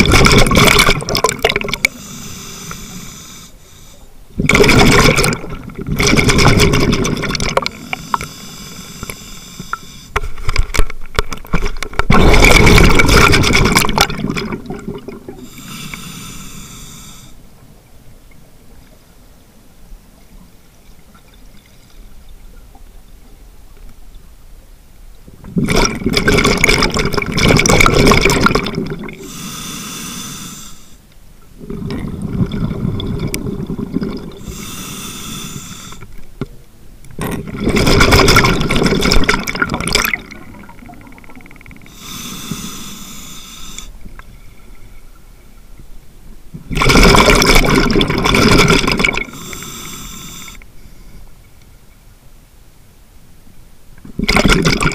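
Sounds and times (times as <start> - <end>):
exhaled bubbles rushing: 0.0 - 1.9, 4.4 - 7.8, 12.1 - 15.4, 25.6 - 29.2, 31.6 - 34.5, 37.4 - 41.8, 46.7 - 49.4
regulator hissing inhalation: 1.8 - 4.1, 7.7 - 10.2, 15.4 - 17.4, 29.2 - 31.0, 34.4 - 36.1, 41.8 - 44.0, 49.2 - 51.1.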